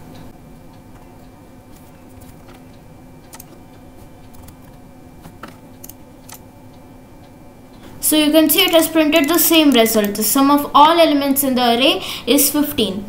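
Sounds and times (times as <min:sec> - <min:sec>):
steady low hum: 0:00.0 - 0:13.0
clicks: 0:00.1 - 0:06.4, 0:07.7 - 0:10.2
computer keyboard keystrokes: 0:03.3 - 0:03.6, 0:04.2 - 0:06.4, 0:08.6 - 0:10.2.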